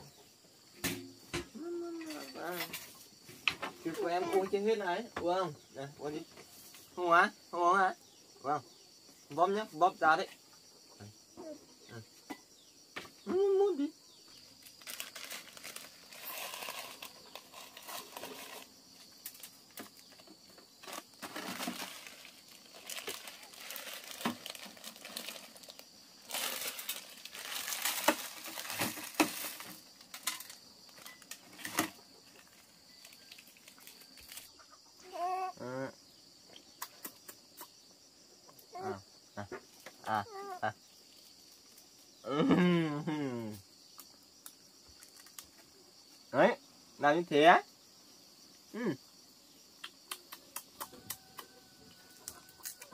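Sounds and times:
high-pitched vocal sounds: 1.6 - 2.3, 13.3 - 13.9, 35.0 - 35.9, 38.7 - 39.0
packaging crinkling and rustling: 14.8 - 18.7, 19.3 - 34.5.

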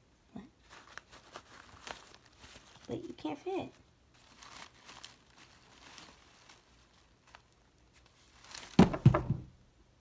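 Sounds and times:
artificial flowers rustling: 0.3 - 9.4
toy landing with dull thumps: 8.8 - 9.6.

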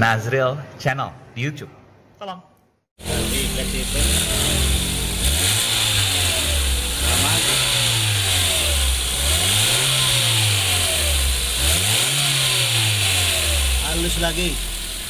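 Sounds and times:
car engine revving: 3.0 - 15.0.

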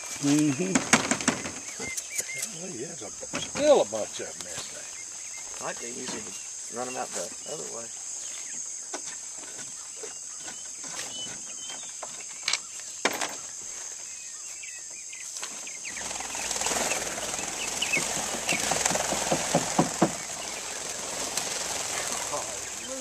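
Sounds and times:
high-pitched insect chorus: 0.0 - 23.0
sharp knocks: 0.7 - 1.9, 18.0 - 20.3
rustling with quick taps: 15.4 - 23.0.

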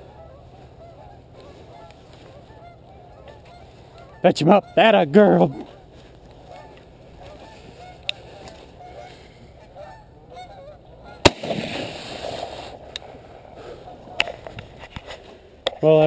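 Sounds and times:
geese honking: 0.0 - 14.7
shotgun shot with echo: 11.2 - 12.3.

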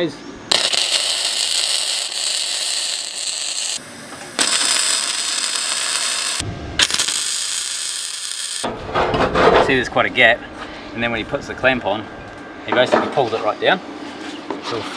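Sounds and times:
welder arc crackling: 0.5 - 8.7.

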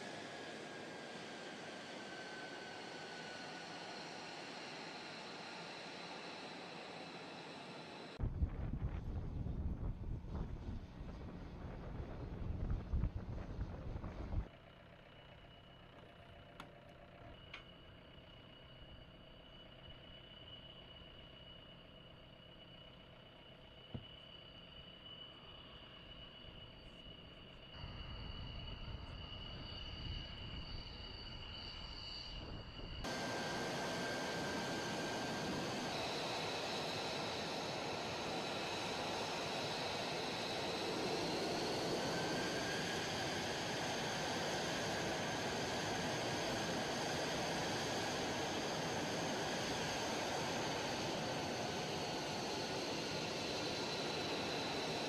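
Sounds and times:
jet engine rush and whine: 0.0 - 55.0
low rumble: 8.2 - 14.5
faint steady tones: 9.1 - 55.0.

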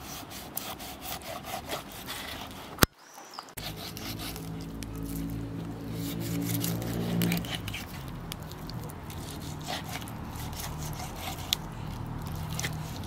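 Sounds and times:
knife cutting raw fish: 3.6 - 13.0.

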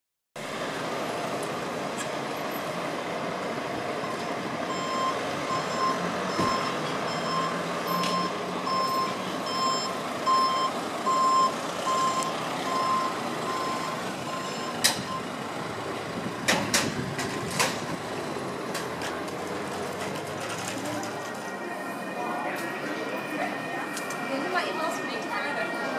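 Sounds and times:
street noise: 0.4 - 25.9
vehicle reversing alarm beeping: 3.6 - 16.4, 19.5 - 25.9.

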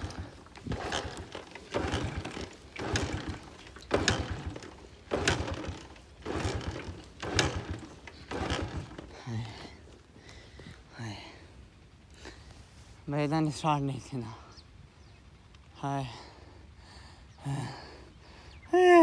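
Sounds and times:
kick-starter clacking: 0.0 - 9.1
motorcycle engine stuttering: 0.0 - 10.0.

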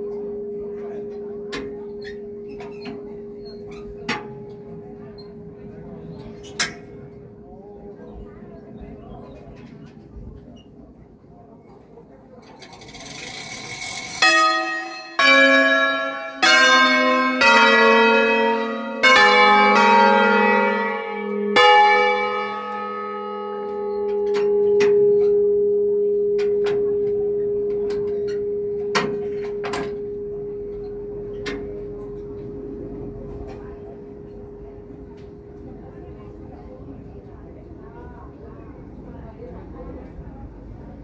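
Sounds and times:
church bells ringing close up: 0.0 - 8.2, 13.0 - 37.9
knocks from bell frame: 14.2 - 34.4.

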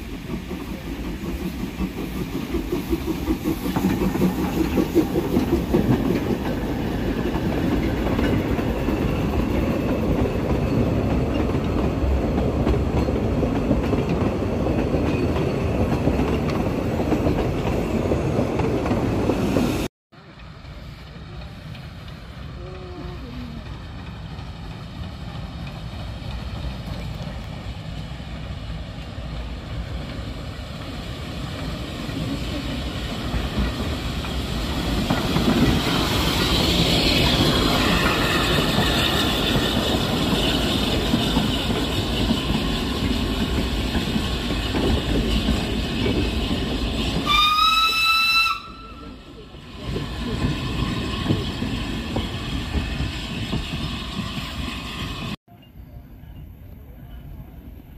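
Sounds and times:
steam locomotive passing: 0.0 - 57.9
steam whistle blast: 47.2 - 49.2.

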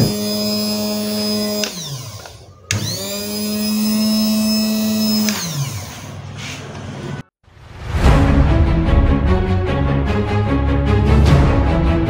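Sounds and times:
electric grass trimmer motor whining: 0.0 - 6.2.

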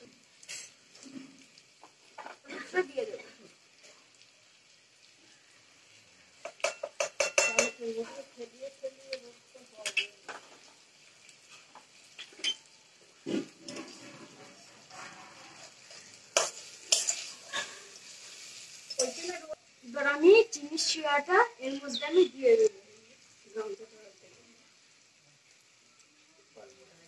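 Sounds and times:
faint sizzle: 0.0 - 27.0
metal spatula scraping a pot: 13.2 - 19.4.

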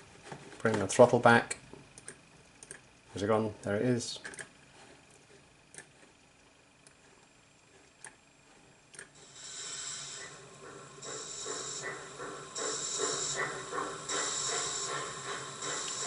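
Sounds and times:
steam hissing from speaker: 9.2 - 16.0
steam locomotive chuffs: 9.2 - 16.0.

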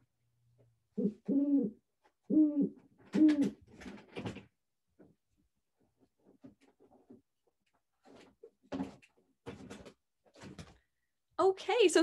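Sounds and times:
owl hooting: 0.9 - 3.6.

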